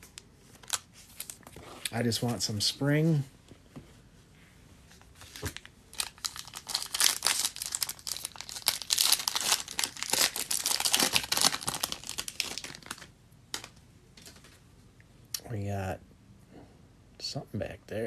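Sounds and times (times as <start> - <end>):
foil wrapper tearing and crinkling: 5.4 - 13.7.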